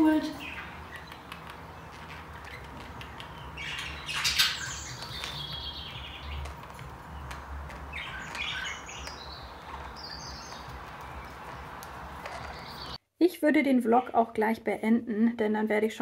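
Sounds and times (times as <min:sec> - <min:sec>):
budgerigars chattering: 0:00.4 - 0:06.5, 0:07.9 - 0:11.4.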